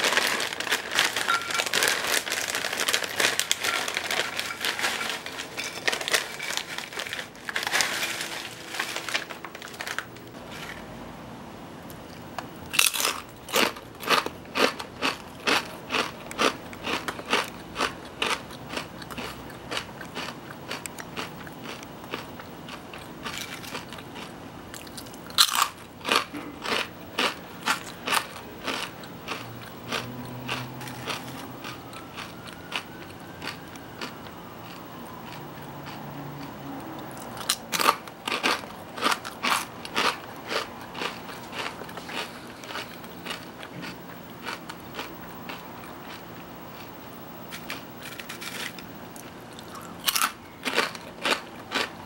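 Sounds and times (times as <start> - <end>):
potato chips crunching: 0.0 - 10.8, 12.0 - 52.0
quiet chewing: 13.3 - 51.9.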